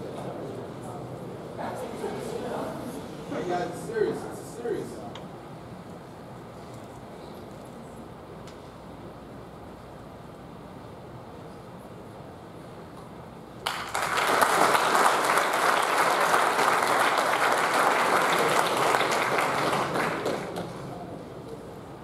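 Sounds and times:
crowd applauding: 13.6 - 21.0.

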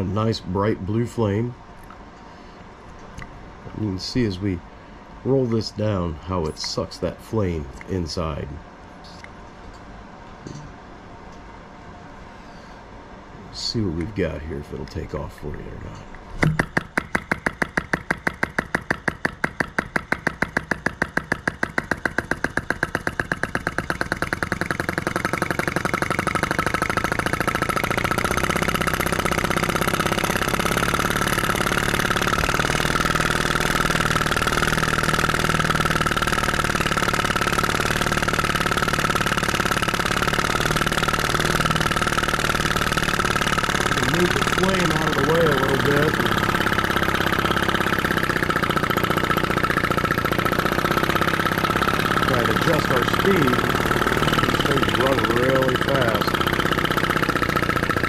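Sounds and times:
small engine clicking: 16.4 - 58.0.

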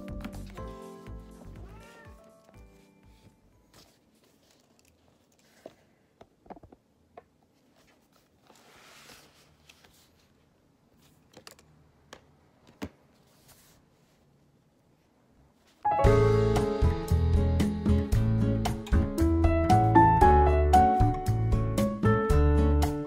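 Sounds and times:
paper rustling: 0.2 - 6.0, 7.6 - 11.4, 13.1 - 14.3.

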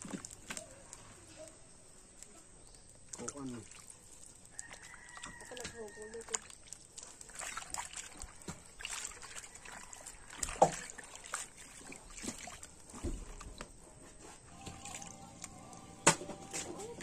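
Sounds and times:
hands splashing leaves in water: 3.1 - 13.8.

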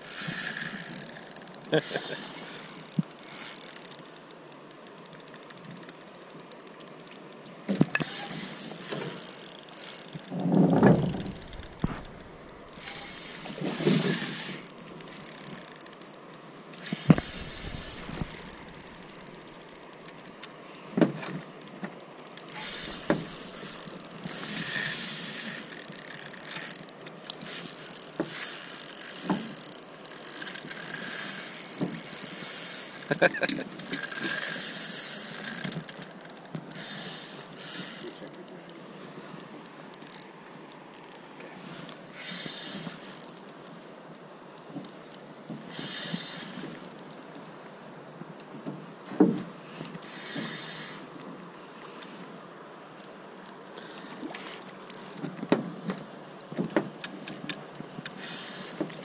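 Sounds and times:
fishing reel ratchet clicking: 0.0 - 20.8, 21.6 - 38.8, 39.4 - 41.2, 42.3 - 43.8, 45.9 - 47.2, 50.2 - 51.0, 53.0 - 55.3, 57.9 - 59.0.

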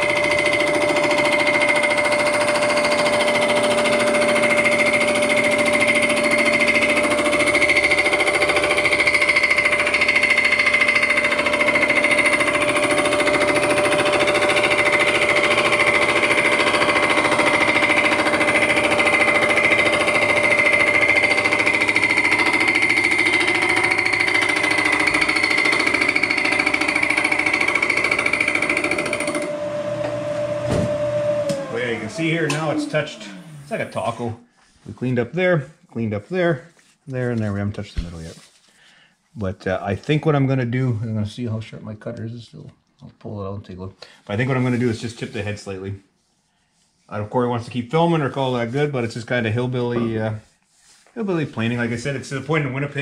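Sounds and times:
cutter cutting metal: 0.0 - 30.4, 31.0 - 34.4
milling machine whine: 0.0 - 34.4.

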